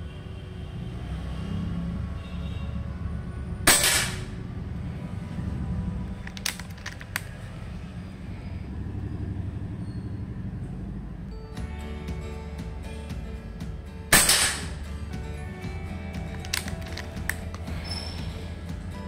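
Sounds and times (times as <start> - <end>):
air rifle shot: 3.7 - 4.3, 14.1 - 14.7
rifle action clicks: 6.2 - 7.4, 16.3 - 17.7.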